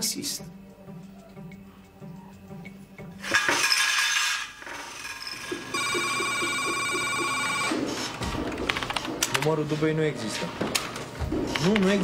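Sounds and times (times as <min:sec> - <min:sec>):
telephone ringing: 0:05.4 - 0:07.8.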